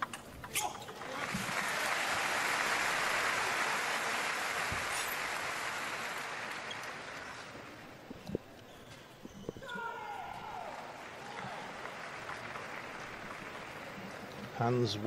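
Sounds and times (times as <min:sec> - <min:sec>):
crowd applauding: 0:00.9 - 0:07.8, 0:10.5 - 0:15.0.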